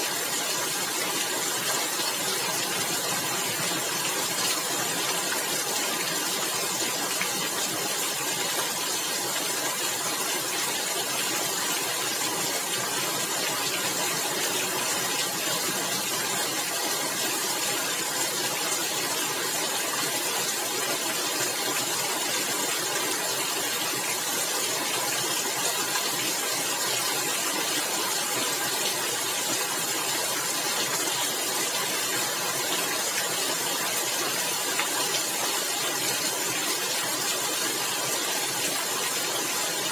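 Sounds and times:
rain on a tiled roof: 0:00.0 - 0:39.9.

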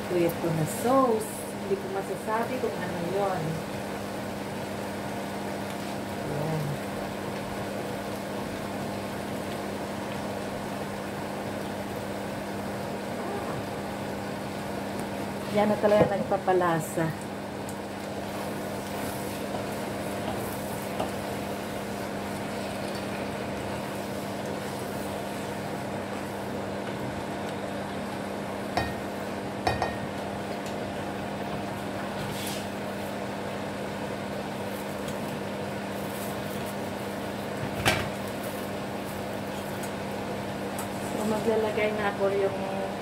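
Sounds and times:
steady hum: 0:00.0 - 0:43.0
spatula knocking on pan: 0:28.8 - 0:29.0, 0:29.6 - 0:30.1.

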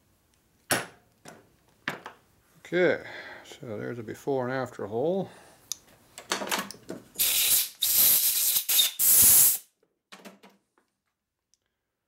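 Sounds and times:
compressed air blasts: 0:07.2 - 0:09.7.

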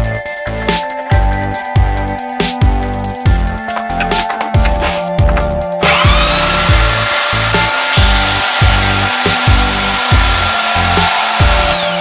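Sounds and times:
electronic music with heavy beat: 0:00.0 - 0:12.0
electric drill whine: 0:05.8 - 0:12.0.

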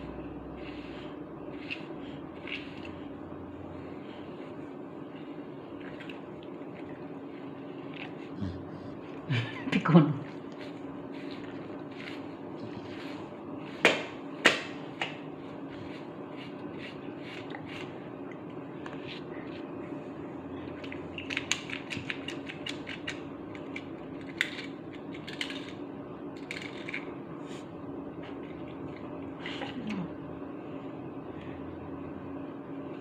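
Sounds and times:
steady low hum: 0:00.0 - 0:33.0
brush scratching through dog fur: 0:10.3 - 0:13.8, 0:15.5 - 0:18.0.

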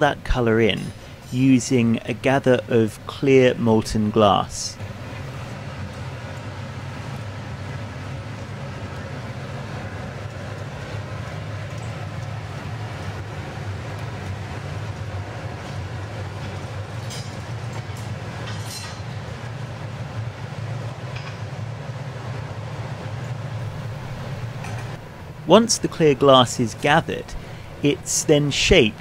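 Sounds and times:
furnaces and fans roaring: 0:00.0 - 0:29.0.

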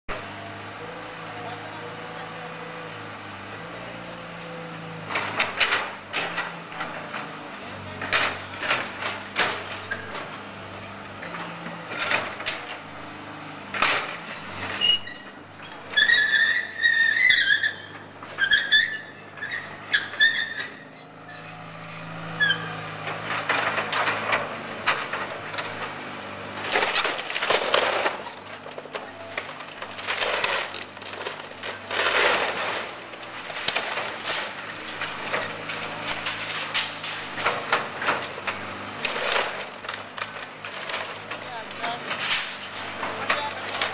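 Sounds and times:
excavator diesel engine: 0:00.1 - 0:43.9
debris falling: 0:26.6 - 0:43.9
splintering timber cracking: 0:26.6 - 0:43.9.

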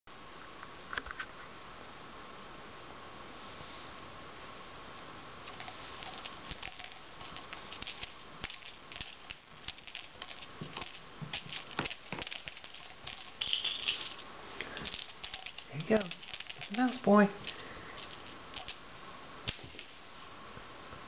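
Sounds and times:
toy mouse rattling: 0:05.4 - 0:18.8, 0:19.5 - 0:20.4.

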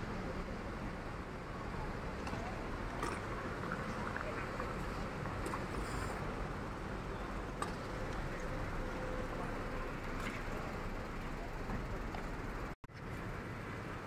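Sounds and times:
traffic and idling cars hum: 0:00.0 - 0:14.0.

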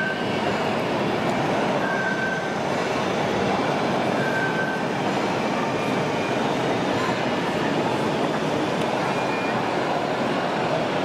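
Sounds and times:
din of busy hall: 0:00.0 - 0:11.0
short high beep: 0:09.1 - 0:09.6.

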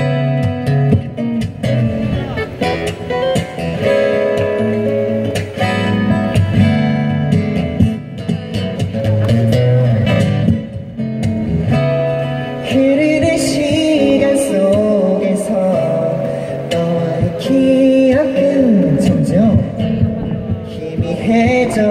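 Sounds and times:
acoustic guitar playing: 0:00.0 - 0:21.9.

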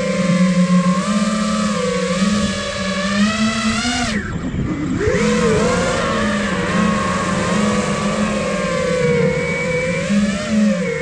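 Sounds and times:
quadcopter motors whining: 0:00.0 - 0:11.0.

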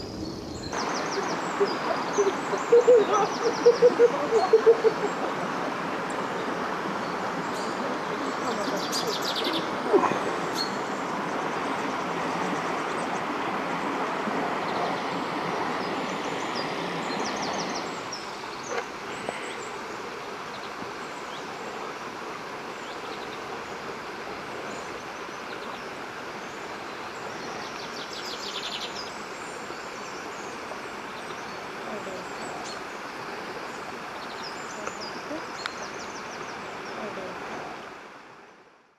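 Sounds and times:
waterfall rushing: 0:00.0 - 0:38.4
small birds chirping: 0:33.6 - 0:37.6.

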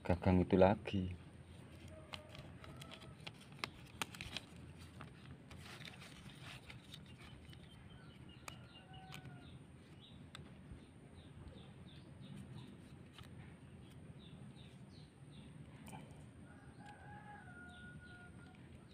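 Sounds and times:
plastic rustling: 0:01.5 - 0:08.2.

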